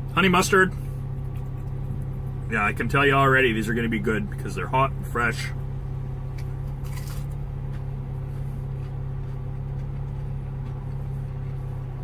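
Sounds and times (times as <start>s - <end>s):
car idling hum: 0.0s - 12.0s
crunch of biting breaded food: 6.4s - 7.4s.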